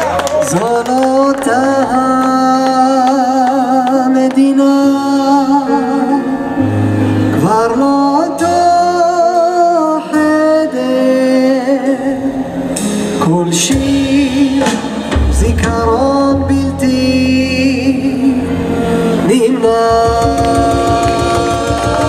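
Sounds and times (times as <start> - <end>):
man singing into microphone: 0.0 - 22.0
stage piano: 0.0 - 22.0
upright double bass: 15.2 - 22.0.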